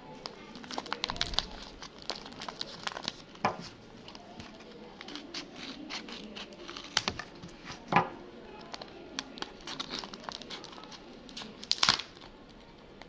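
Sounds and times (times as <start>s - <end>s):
paper bag crinkling: 0.2s - 3.4s.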